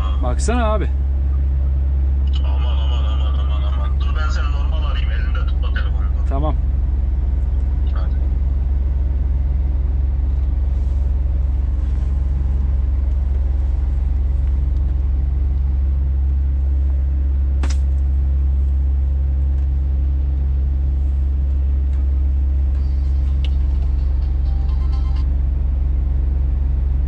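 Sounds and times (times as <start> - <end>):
truck diesel engine droning: 0.0 - 27.0
sharp click: 17.6 - 18.0.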